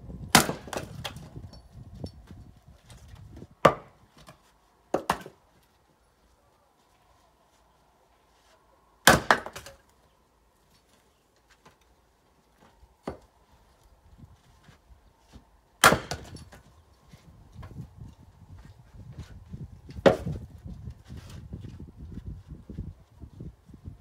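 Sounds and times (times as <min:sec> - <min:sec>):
axe chopping firewood: 0:00.3 - 0:01.4, 0:03.6 - 0:05.4, 0:09.0 - 0:09.9, 0:13.0 - 0:13.3, 0:15.8 - 0:16.7, 0:19.9 - 0:20.4.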